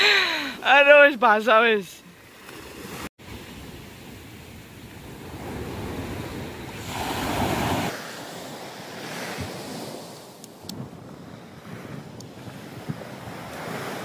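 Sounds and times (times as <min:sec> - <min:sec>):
ocean surf breaking: 0:05.0 - 0:14.0
wind buffeting microphone: 0:10.6 - 0:14.0.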